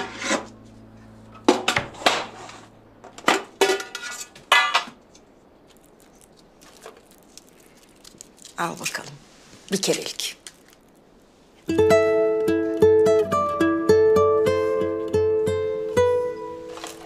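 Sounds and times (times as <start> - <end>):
metal tin knocking and clinking: 3.2 - 5.0
foil wrappers rustling: 5.1 - 11.2, 16.6 - 17.0.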